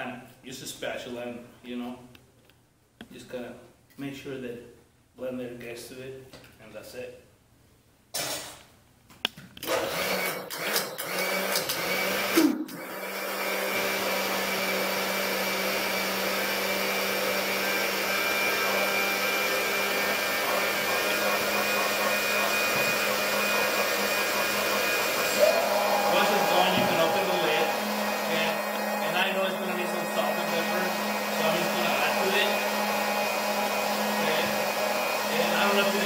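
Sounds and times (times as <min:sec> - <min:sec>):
blender motor running: 0:09.6 - 0:36.0.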